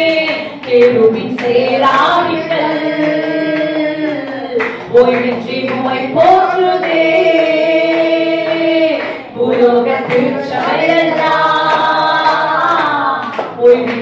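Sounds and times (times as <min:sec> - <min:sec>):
women singing into microphones: 0:00.0 - 0:14.0.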